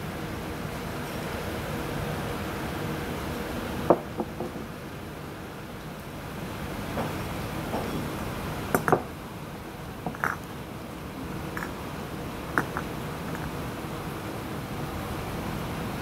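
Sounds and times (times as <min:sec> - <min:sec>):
glass vases clinking: 0:08.7 - 0:09.1, 0:10.1 - 0:10.5, 0:11.6 - 0:11.8, 0:12.6 - 0:13.6.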